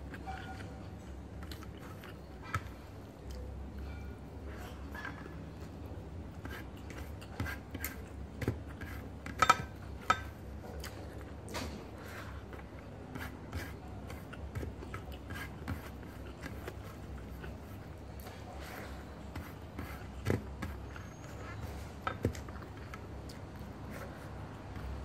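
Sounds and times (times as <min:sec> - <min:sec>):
fingers scraping rice off a plate: 0:06.3 - 0:09.4, 0:12.0 - 0:25.0.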